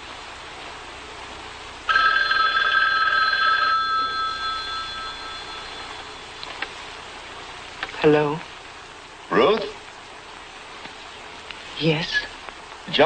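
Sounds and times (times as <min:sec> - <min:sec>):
telephone bell ringing: 0:01.9 - 0:06.4.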